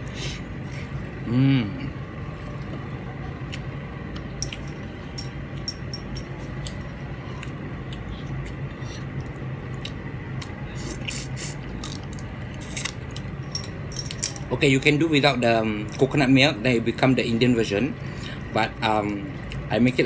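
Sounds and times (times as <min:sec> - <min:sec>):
steady low hum: 0:00.0 - 0:20.0
person chewing: 0:06.5 - 0:13.4.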